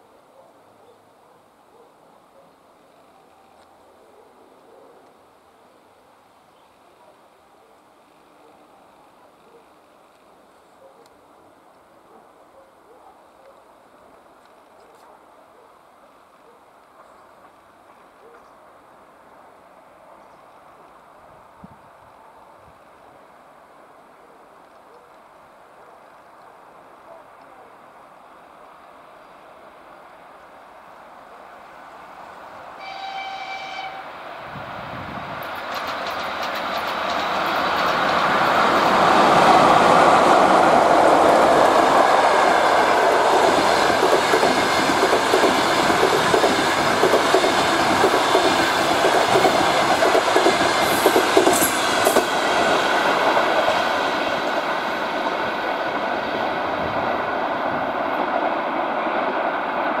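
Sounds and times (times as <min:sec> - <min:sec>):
passing train rumble: 0:28.4 - 1:00.0
locomotive horn blast: 0:32.8 - 0:34.2
wheels clacking over rail joints: 0:35.4 - 0:56.2.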